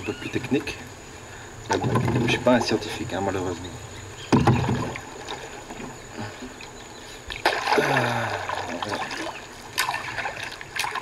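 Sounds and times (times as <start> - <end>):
paddle strokes splashing in water: 4.3 - 11.0.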